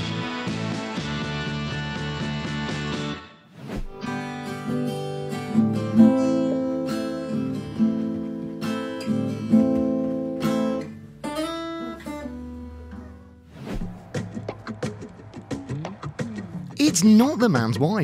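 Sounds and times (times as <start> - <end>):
acoustic guitar strumming: 4.0 - 15.1.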